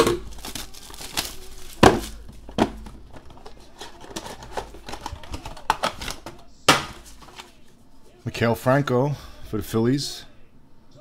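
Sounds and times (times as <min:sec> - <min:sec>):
cardboard and packaging rustling: 0:00.0 - 0:07.8.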